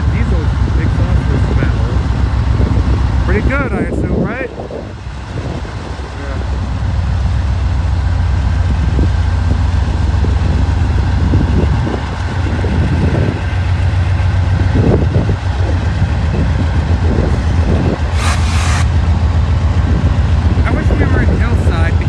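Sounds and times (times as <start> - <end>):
diesel locomotive engine drone: 0.0 - 22.0
brief air hiss: 18.1 - 19.0.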